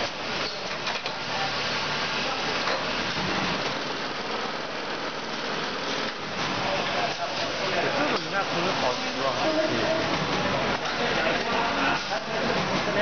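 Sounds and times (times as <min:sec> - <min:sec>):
bagging machine running: 0:00.0 - 0:13.0.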